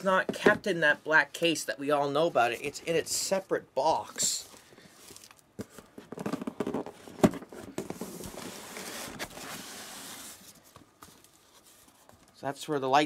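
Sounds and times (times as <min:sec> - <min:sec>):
cardboard packaging rustling: 0:04.4 - 0:12.3.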